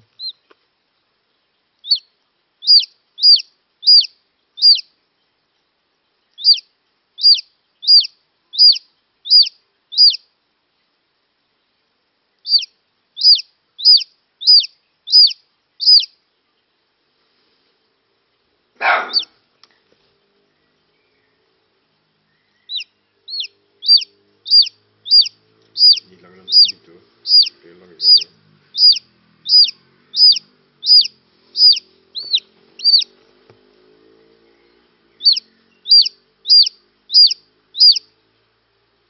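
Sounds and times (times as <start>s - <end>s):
chick peeping: 0.0s - 0.5s, 1.8s - 4.9s, 6.3s - 10.2s, 12.4s - 16.1s, 18.8s - 19.3s, 22.6s - 33.1s, 35.2s - 38.1s.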